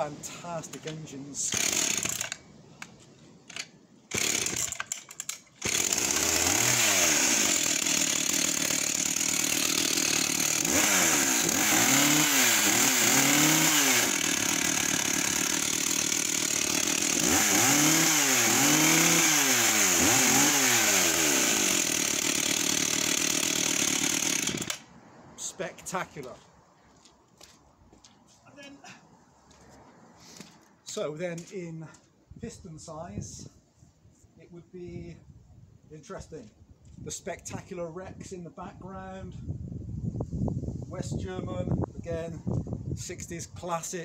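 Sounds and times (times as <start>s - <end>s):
chainsaw starter pulls: 0.7s - 2.4s, 3.5s - 24.8s
chainsaw engine idling and revving: 1.5s - 2.4s, 4.1s - 24.9s.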